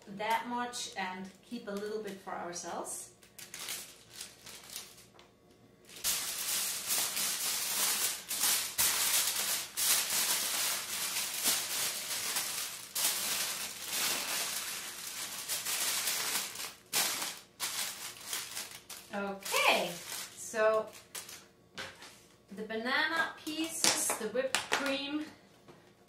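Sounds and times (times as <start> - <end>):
aluminium foil crinkling: 1.5 - 21.5.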